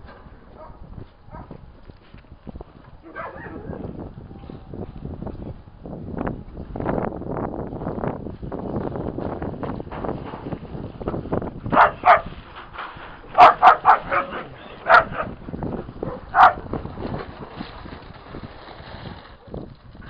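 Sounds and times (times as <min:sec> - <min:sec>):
dog barking: 0:00.6 - 0:01.6, 0:03.1 - 0:03.8, 0:11.7 - 0:12.3, 0:13.4 - 0:15.4, 0:16.1 - 0:16.6.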